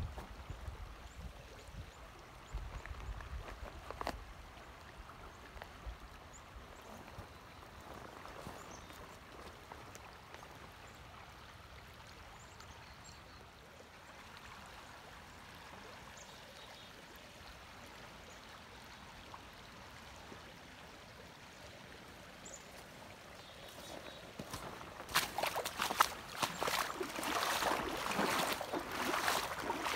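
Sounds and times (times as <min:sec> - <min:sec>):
river water rushing: 0:20.7 - 0:29.9.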